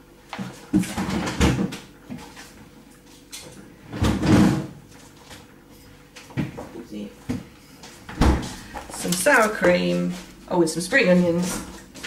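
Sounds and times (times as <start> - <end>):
cupboard door opening and shutting: 3.9 - 4.8, 8.1 - 8.6.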